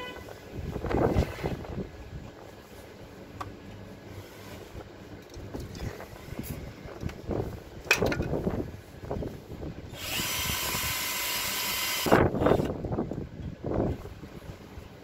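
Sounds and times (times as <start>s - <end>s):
battery drill running: 9.9s - 12.8s.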